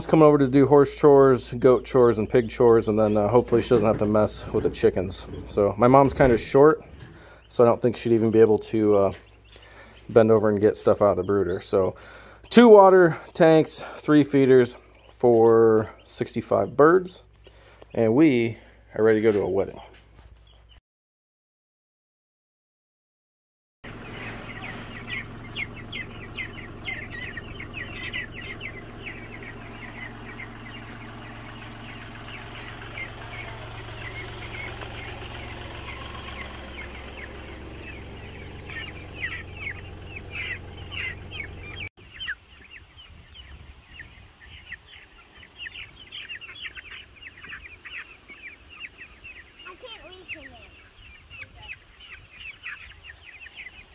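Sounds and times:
tractor engine humming: 0.0s - 16.6s, 23.9s - 42.3s
chicks peeping: 0.0s - 20.8s, 23.8s - 53.9s.

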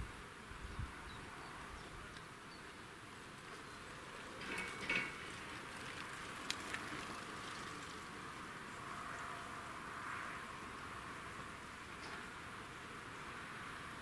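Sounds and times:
insects buzzing: 0.0s - 14.0s
faint clicks: 5.9s - 7.8s.

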